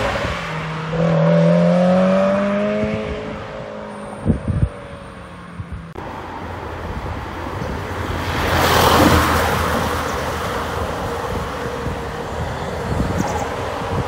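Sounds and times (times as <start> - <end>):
truck passing by: 6.0 - 14.0.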